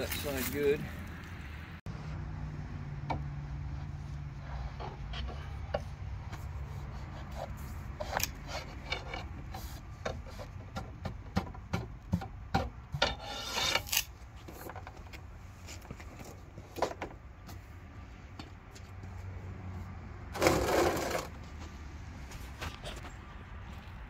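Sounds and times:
metal line scraping and clicking: 7.2s - 10.6s, 13.0s - 16.4s.

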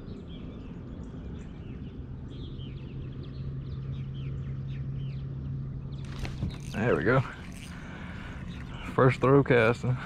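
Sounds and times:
small birds chirping: 0.0s - 10.0s
electric trolling motor hum: 1.9s - 10.0s
wind rumble: 5.8s - 8.8s.

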